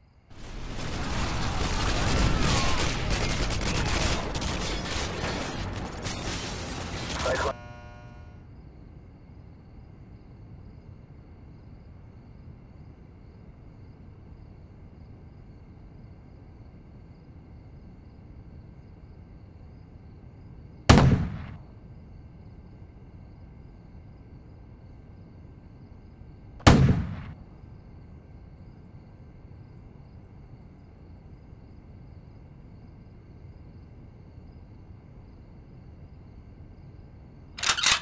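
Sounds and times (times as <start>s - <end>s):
sharp bangs: 0.3s - 8.3s, 20.9s - 21.6s, 26.6s - 27.4s
faint room hum: 6.1s - 38.0s.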